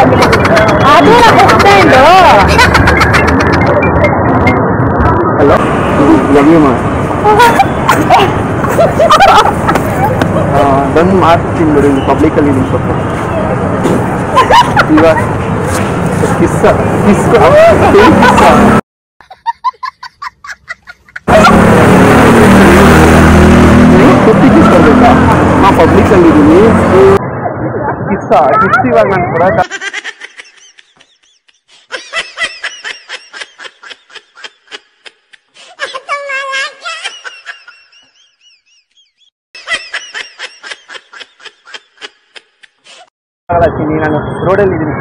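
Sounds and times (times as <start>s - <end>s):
high-pitched laughter: 0.0s - 4.3s, 7.3s - 10.5s, 14.4s - 15.3s, 17.3s - 21.6s, 29.3s - 43.1s
high-pitched chirping sound effect: 2.7s - 5.0s
loud dense din: 21.3s - 26.9s.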